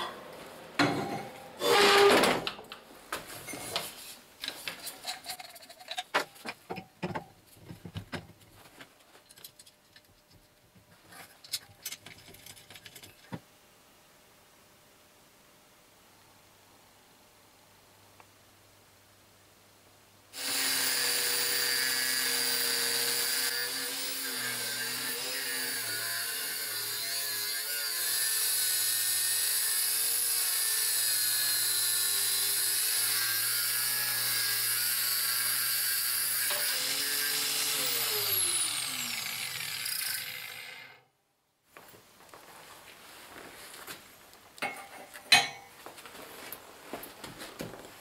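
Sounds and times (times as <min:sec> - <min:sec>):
angle grinder cutting steel: 0:01.6 - 0:02.1, 0:20.4 - 0:41.0
grinder motor winding down: 0:36.5 - 0:41.0.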